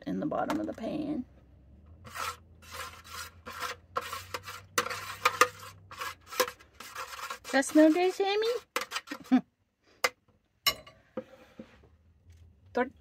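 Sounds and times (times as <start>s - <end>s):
metal spoon scraping baking pan: 2.0s - 9.3s.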